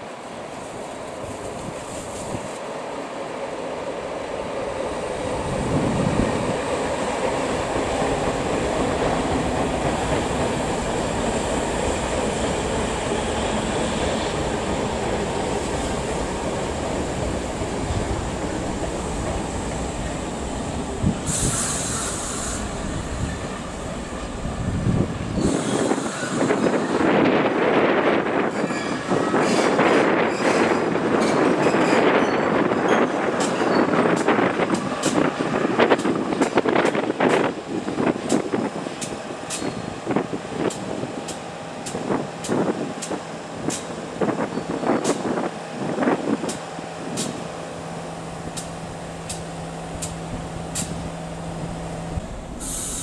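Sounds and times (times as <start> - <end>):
train wheels on rails: 0.0 - 53.0
high hiss: 21.0 - 24.6, 25.3 - 26.9, 52.4 - 53.0.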